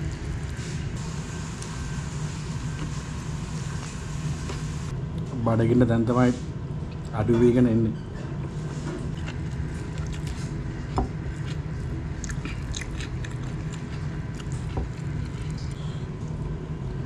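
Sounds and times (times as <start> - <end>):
steady low hum: 0.0 - 17.0
chewing: 9.1 - 17.0.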